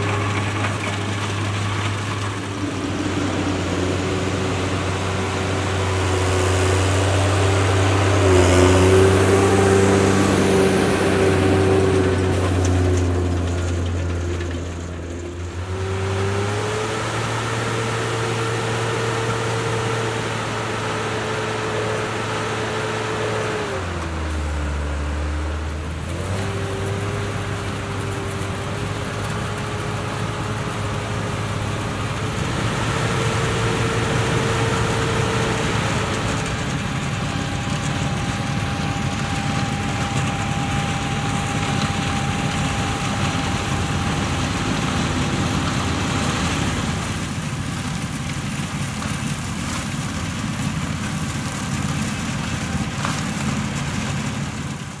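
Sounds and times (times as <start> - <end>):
tractor diesel engines running: 0.0 - 55.0.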